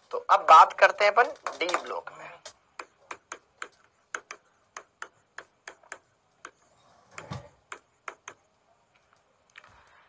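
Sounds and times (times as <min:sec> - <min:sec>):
pen clicking on writing board: 0:02.8 - 0:06.6, 0:07.2 - 0:08.4.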